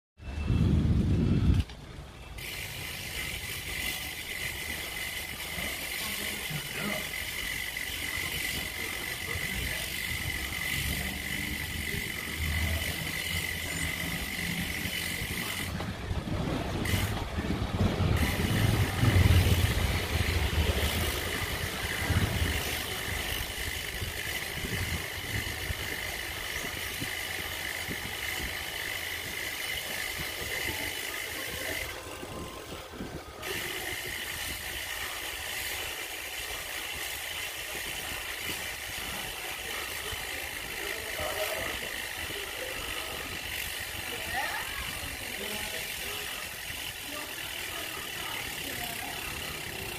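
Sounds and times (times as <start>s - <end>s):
motor vehicle passing: 2.4s - 32.6s.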